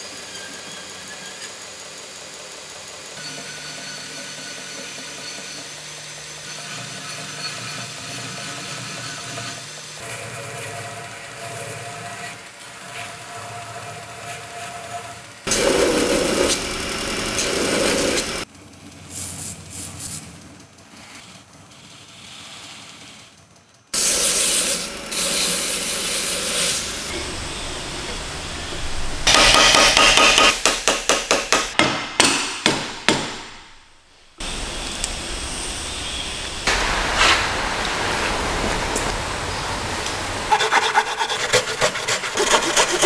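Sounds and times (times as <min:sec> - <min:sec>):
machine noise: 0:00.0 - 0:18.5, 0:24.0 - 0:31.8, 0:33.5 - 0:43.0
belt grinder grinding steel: 0:15.5 - 0:18.4, 0:40.5 - 0:43.0.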